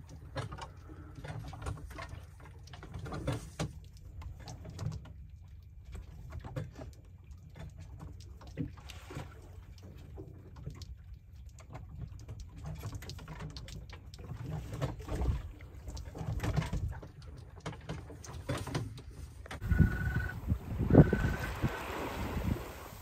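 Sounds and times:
knocks and splashes: 0.0s - 19.7s, 20.6s - 23.0s
water moving along hull: 0.0s - 23.0s
wind on microphone: 19.6s - 23.0s.

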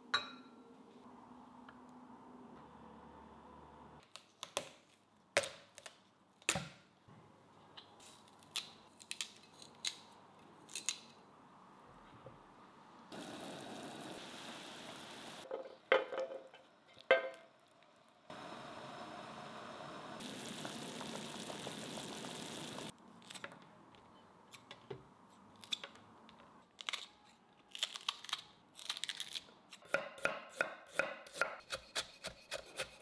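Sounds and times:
watery hiss: 13.2s - 15.4s.

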